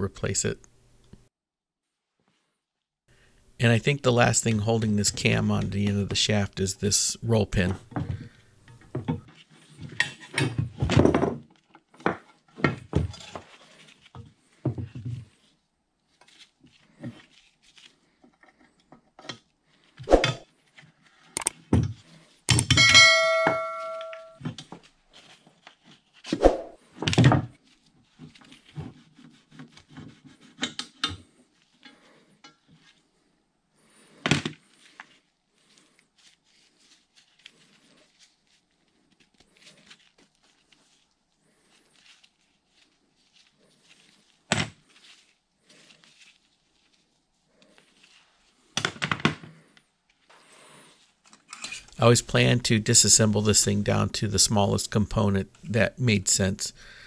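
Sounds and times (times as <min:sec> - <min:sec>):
metallic ring: 0:22.5 - 0:24.4.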